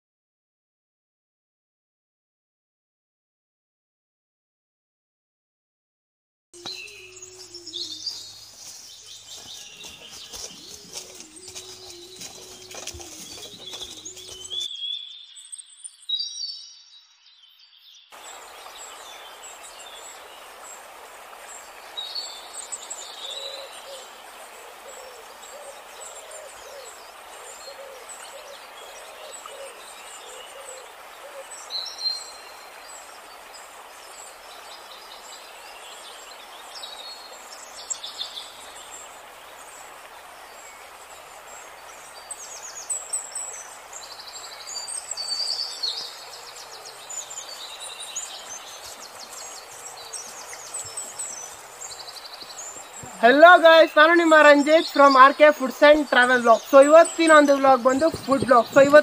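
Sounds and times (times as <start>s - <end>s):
birds chirping: 6.6s - 16.6s, 18.2s - 59.0s
stream rushing: 6.7s - 14.7s, 18.1s - 59.0s
bird hooting: 29.2s - 31.5s.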